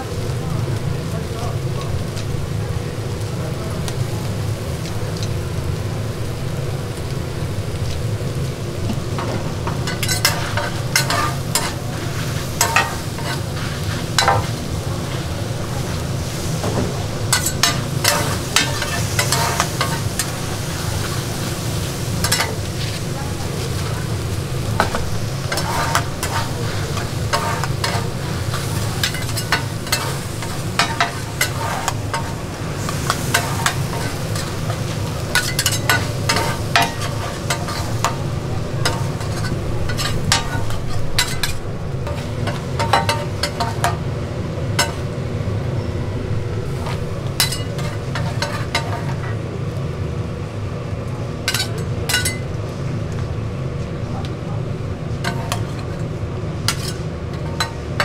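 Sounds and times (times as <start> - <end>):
food sizzling: 0.0 - 53.2, 54.7 - 58.0
steady low hum: 3.6 - 58.0
metal spatulas scraping on griddle: 9.2 - 16.7, 17.3 - 21.4, 22.0 - 24.2, 24.8 - 44.0, 44.8 - 45.1, 46.7 - 49.4, 51.5 - 52.4, 55.2 - 58.0.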